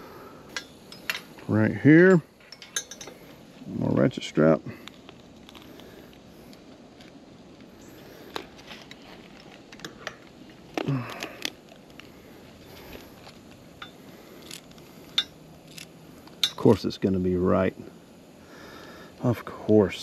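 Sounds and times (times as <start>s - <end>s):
ratchet strap clicking and rattling: 11.1s - 16.7s.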